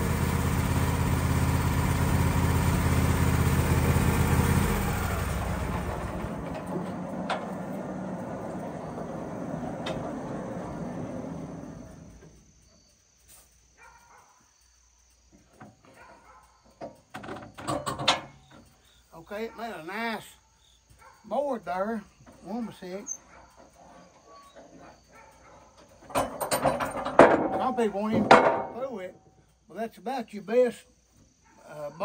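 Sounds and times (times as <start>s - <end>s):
band sawmill running: 0.0s - 12.4s.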